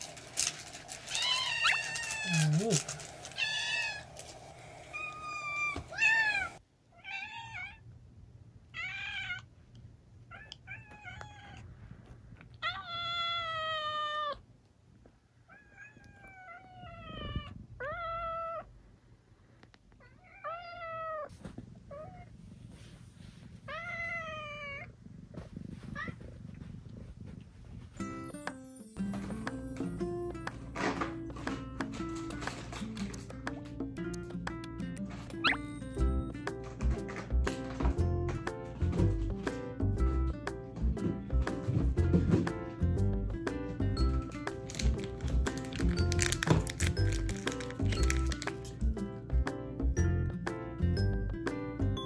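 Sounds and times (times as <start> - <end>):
kittens meowing: 1.1 - 4.1.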